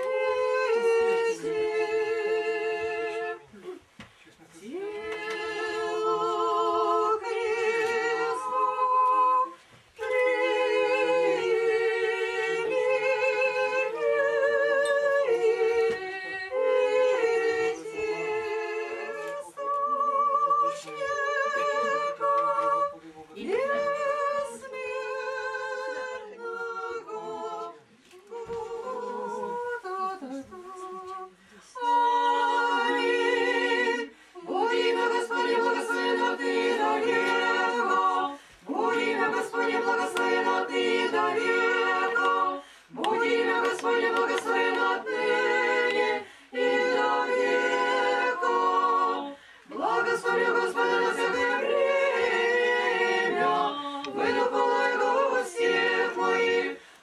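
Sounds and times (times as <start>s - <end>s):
church choir singing a cappella: 0.0s - 57.0s
singers breathing: 34.1s - 34.4s, 38.4s - 38.6s, 42.6s - 43.0s, 46.2s - 46.6s, 49.3s - 49.7s, 56.8s - 57.0s.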